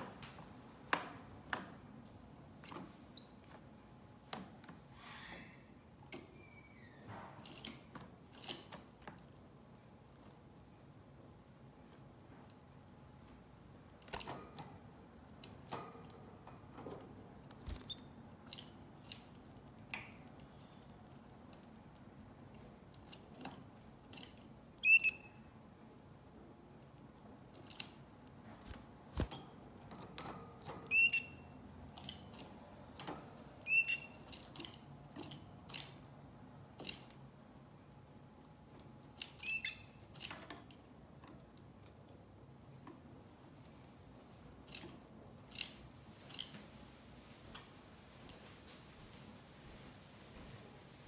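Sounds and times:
canary chirping: 3.1 - 3.5, 24.8 - 25.5, 30.8 - 31.6, 33.6 - 34.4, 39.3 - 40.1.

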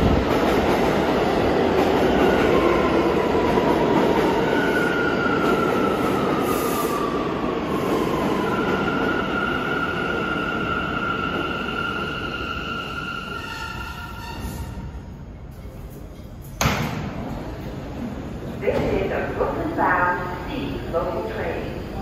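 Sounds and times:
train wheels rumbling on rail: 0.0 - 20.8
high squealing of train wheels: 4.4 - 15.1.

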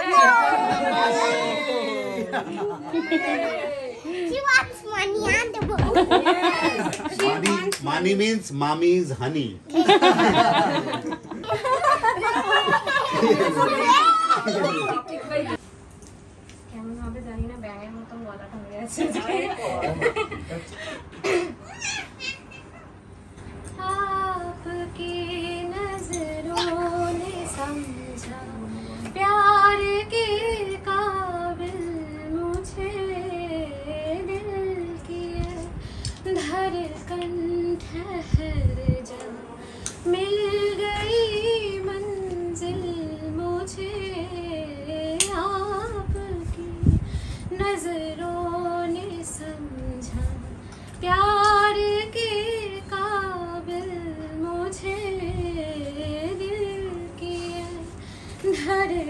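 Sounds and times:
woman singing slow song: 23.6 - 59.0.

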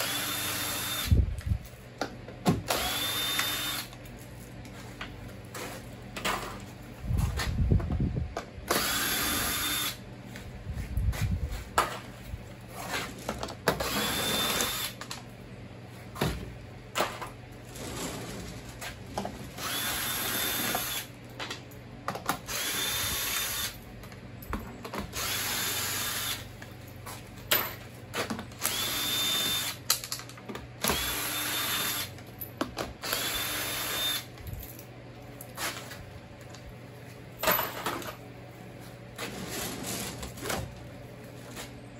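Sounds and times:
cordless drill whining: 0.0 - 1.2, 2.7 - 4.0, 8.7 - 10.0, 13.8 - 15.0, 19.6 - 21.1, 22.5 - 23.8, 25.1 - 26.5, 28.6 - 29.8, 30.8 - 32.1, 33.0 - 34.3.

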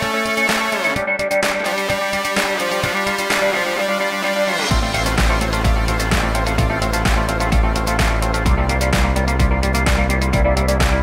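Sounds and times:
electronic music with synth tones: 0.0 - 11.0.

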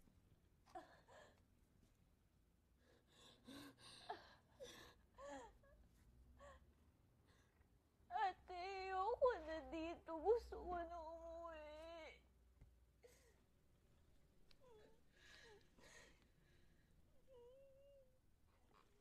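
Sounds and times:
girl crying: 17.3 - 18.2.

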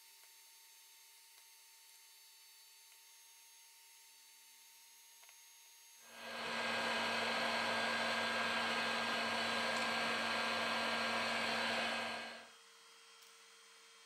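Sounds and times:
hot air blower running: 6.1 - 12.5.

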